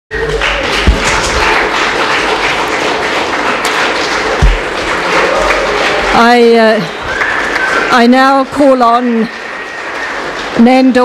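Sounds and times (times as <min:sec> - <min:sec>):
applause: 0:00.1 - 0:11.0
dull low thumps: 0:04.4 - 0:04.8.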